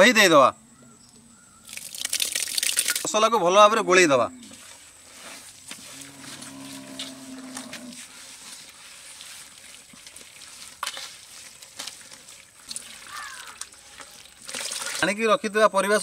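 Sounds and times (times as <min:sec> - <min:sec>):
hand squelching wet curd in pot: 0:07.7 - 0:15.2.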